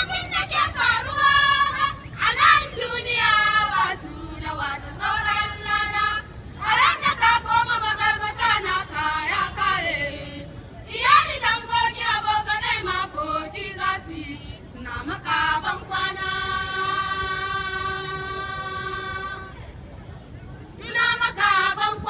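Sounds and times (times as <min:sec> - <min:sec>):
young women singing in choir: 0:00.0 - 0:19.7, 0:20.7 - 0:22.0.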